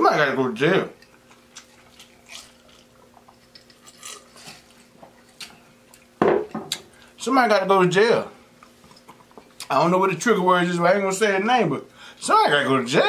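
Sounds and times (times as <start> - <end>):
sipping and swallowing: 1.0 - 7.1
man's voice: 9.7 - 13.0.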